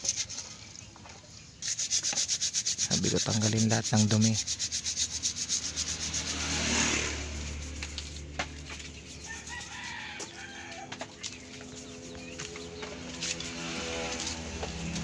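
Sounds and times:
sponge scrubbing in water: 0:00.0 - 0:00.9, 0:01.6 - 0:15.0
rooster crowing: 0:09.2 - 0:11.0.

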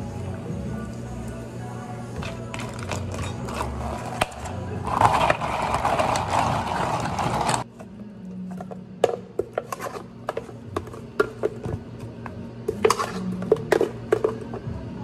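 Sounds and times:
smoothie scraped from blender jar: 0:02.9 - 0:07.6.

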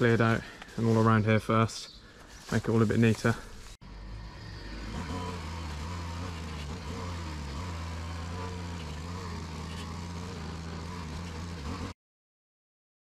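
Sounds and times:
brush cutter cutting weeds: 0:02.3 - 0:11.9
brush cutter engine running: 0:02.6 - 0:12.0.

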